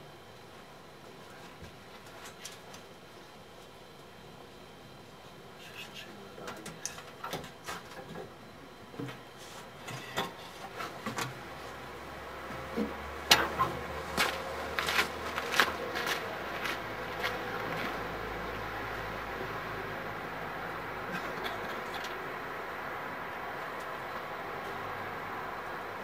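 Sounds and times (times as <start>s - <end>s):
low steady hum: 0.0s - 26.0s.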